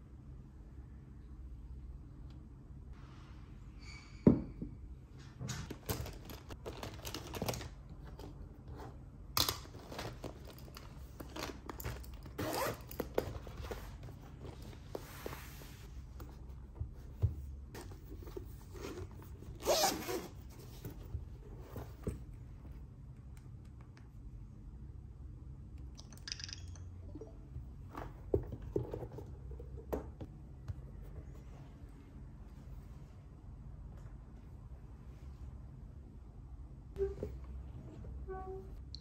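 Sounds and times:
zippers being pulled: 11.8 - 13.2, 19.6 - 20.4.

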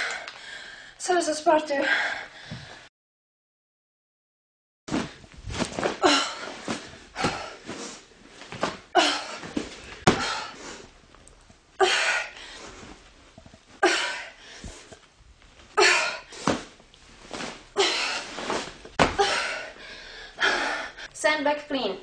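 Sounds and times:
woman grunting and exhaling: 5.8 - 7.7, 8.9 - 10.7, 11.8 - 12.4, 13.8 - 14.7, 15.7 - 16.6, 17.8 - 21.1.

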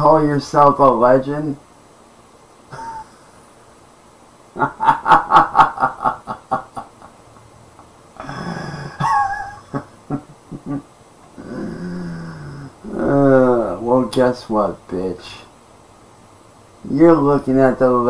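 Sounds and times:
man laughing: 2.7 - 3.6, 4.6 - 7.5, 8.2 - 11.8
harsh breathy noise: 8.2 - 9.0, 11.4 - 13.1.

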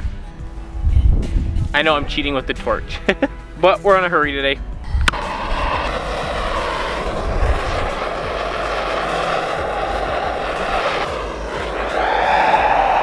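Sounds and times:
gas torch flame hissing: 4.8 - 13.0.

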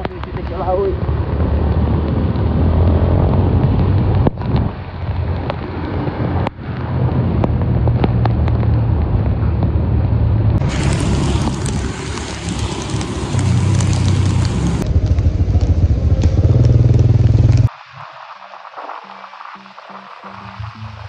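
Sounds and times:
wind buffeting microphone: 0.0 - 17.7
low engine hum: 7.0 - 17.7.

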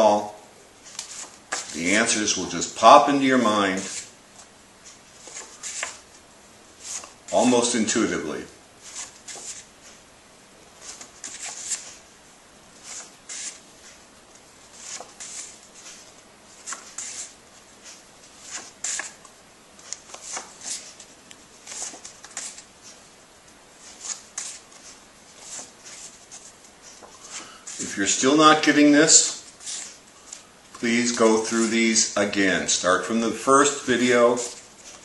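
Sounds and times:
paper flashcards flipping: 0.8 - 2.0, 3.8 - 6.1, 6.8 - 7.7, 8.8 - 10.0, 10.8 - 12.0, 12.8 - 14.0, 14.7 - 23.0, 23.8 - 32.1, 33.4 - 35.0.

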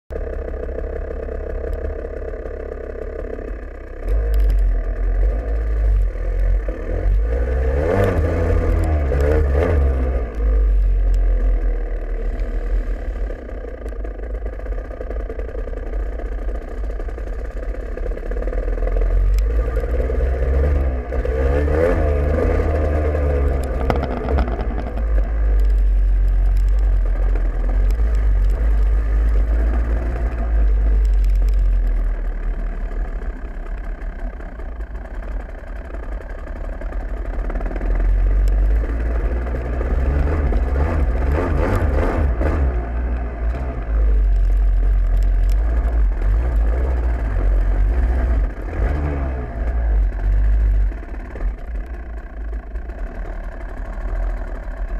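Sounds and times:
dirt bike engine revving: 1.9 - 13.6, 18.7 - 31.6, 37.2 - 51.7.

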